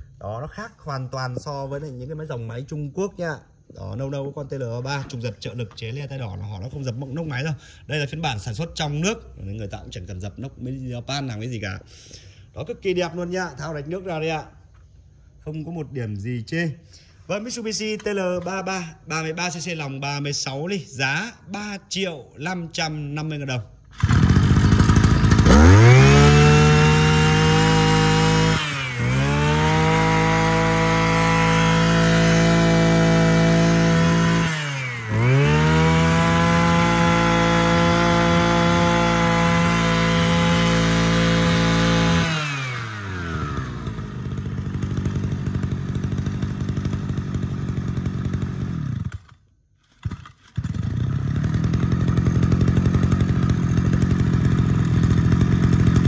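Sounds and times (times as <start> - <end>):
brush cutter engine revving: 23.8 - 56.0.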